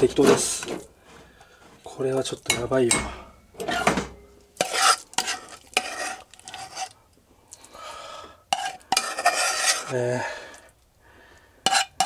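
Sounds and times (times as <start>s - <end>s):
metal spoon scraping saucepan: 4.6s - 7.0s, 8.5s - 10.0s, 11.6s - 12.0s.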